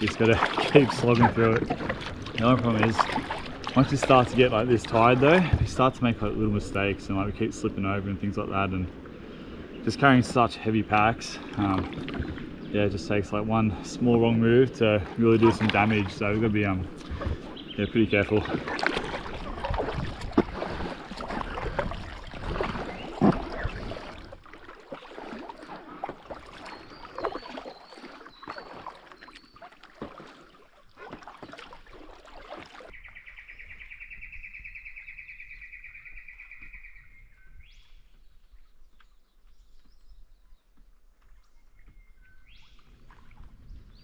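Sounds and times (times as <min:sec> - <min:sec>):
paddle strokes splashing: 0:00.0 - 0:33.0, 0:42.6 - 0:44.0.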